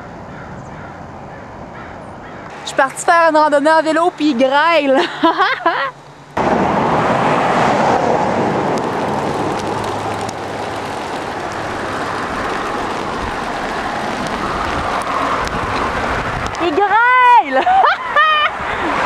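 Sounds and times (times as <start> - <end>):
bicycle riding through hail: 7.3 - 19.0.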